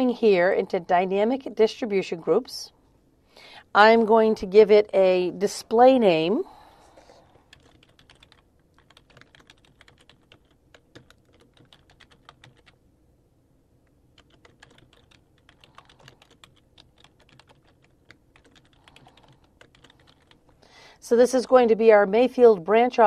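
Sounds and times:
typing on computer keyboard: 0:07.5 - 0:12.8, 0:14.2 - 0:20.4.

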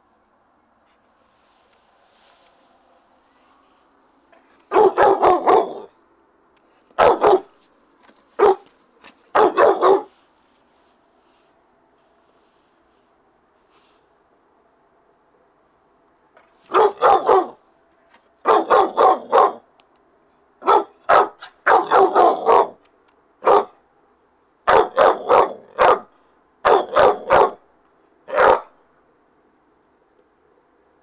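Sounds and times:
dog barking: 0:04.7 - 0:05.9, 0:07.0 - 0:07.5, 0:08.4 - 0:08.7, 0:09.3 - 0:10.1, 0:16.7 - 0:17.6, 0:18.4 - 0:19.6, 0:20.6 - 0:22.8, 0:23.4 - 0:23.8, 0:24.7 - 0:27.6, 0:28.3 - 0:28.8.

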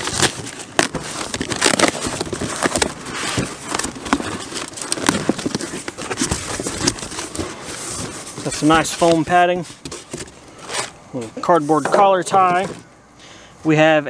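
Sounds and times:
cardboard box tearing: 0:00.0 - 0:11.0
cardboard flaps scraping and rustling: 0:00.0 - 0:12.9.

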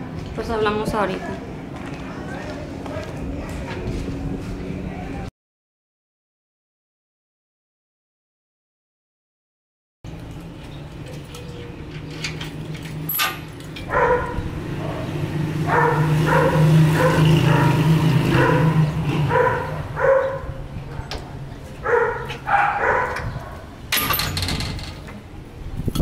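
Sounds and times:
dog barking: 0:13.9 - 0:20.6, 0:21.8 - 0:23.7.

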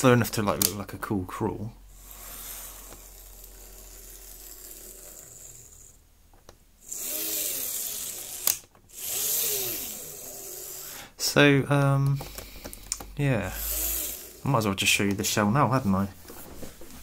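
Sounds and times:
model train motor whirring: 0:02.0 - 0:06.0, 0:06.8 - 0:11.1, 0:13.4 - 0:14.5.

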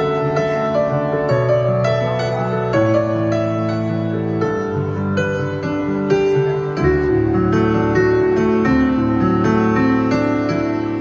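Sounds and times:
slow piano chords: 0:00.0 - 0:11.0.

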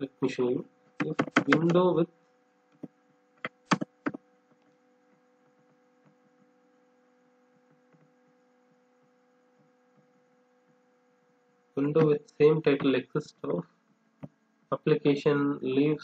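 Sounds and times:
faint electrical hum: 0:00.0 - 0:16.0
computer keyboard clicks: 0:01.0 - 0:01.8.

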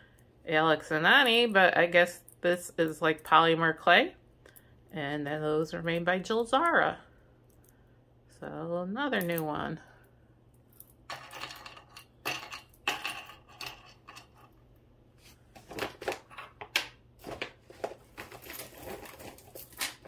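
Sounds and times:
jewelry clinking and jingling: 0:10.7 - 0:14.6, 0:18.2 - 0:20.0.

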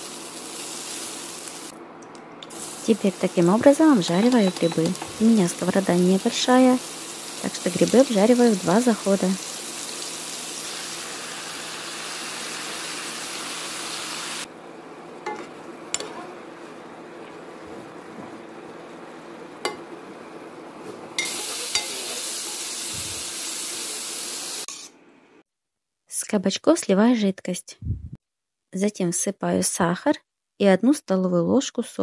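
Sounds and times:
mushrooms sizzling in a pan: 0:00.0 - 0:01.7, 0:02.5 - 0:14.5, 0:21.2 - 0:24.7.

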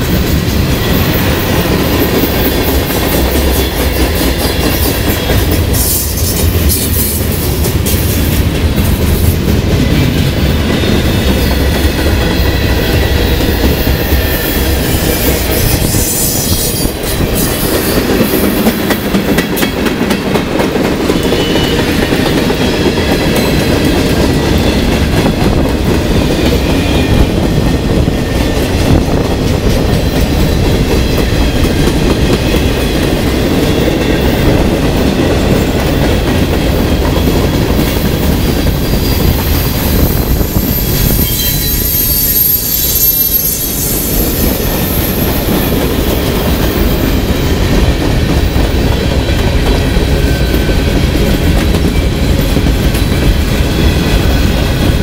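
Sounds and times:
freight train wheels rumbling: 0:00.0 - 0:55.0
high wheel squeal: 0:38.8 - 0:45.9.

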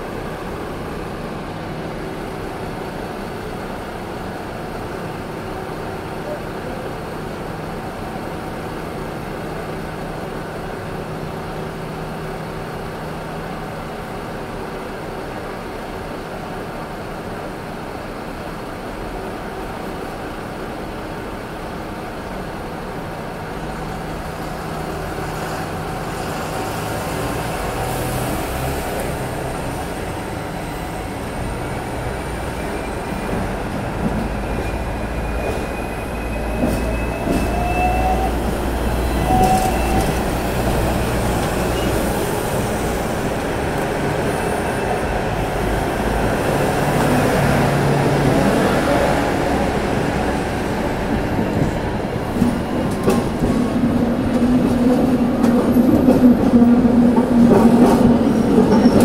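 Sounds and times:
tram humming: 0:00.0 - 0:59.0
tram motor whine: 0:28.9 - 0:59.0.

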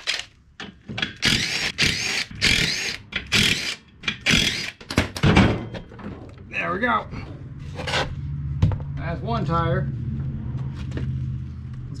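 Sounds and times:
cordless drill running: 0:01.2 - 0:04.7.

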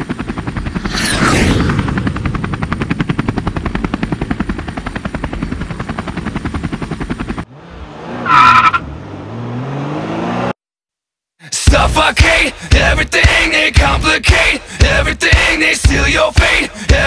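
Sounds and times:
loud whoosh with ringing tone: 0:00.8 - 0:01.7.

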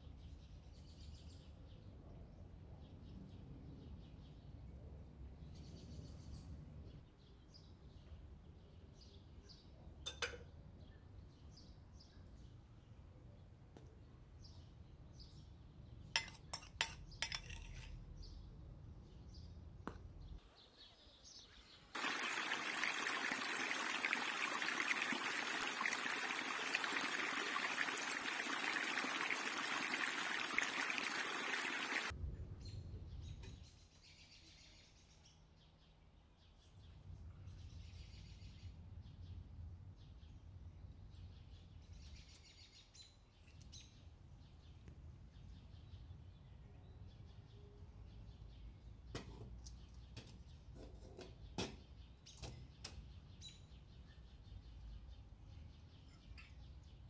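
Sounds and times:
spoon clinking against glass bowl: 0:16.2 - 0:18.0
birds chirping: 0:20.2 - 0:32.1
water splashing over rocks: 0:22.0 - 0:32.1.

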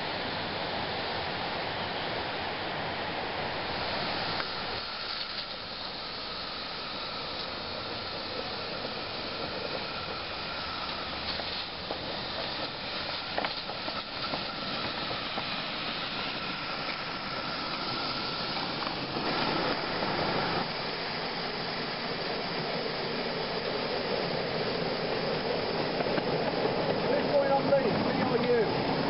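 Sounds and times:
steam locomotive hissing: 0:00.0 - 0:29.0.

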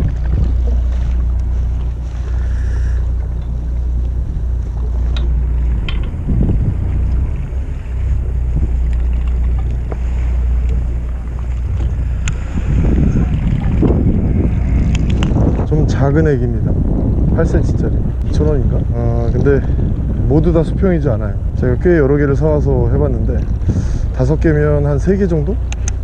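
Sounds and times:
boat engine idling: 0:00.0 - 0:26.0
wind buffeting microphone: 0:00.0 - 0:26.0
light clicks: 0:25.7 - 0:26.0.

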